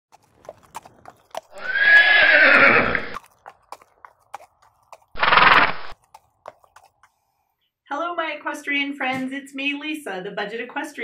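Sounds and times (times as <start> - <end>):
horse whinnying: 1.4 - 3.2, 5.1 - 6.0
rapid fluttering sound: 5.2 - 6.0.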